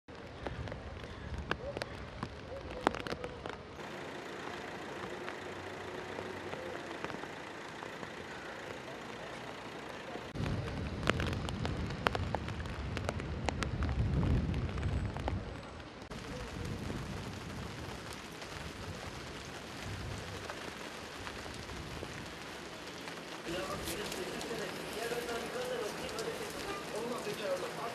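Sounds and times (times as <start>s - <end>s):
heavy rain on pavement: 0.1s - 27.9s
low rumble: 10.3s - 20.4s.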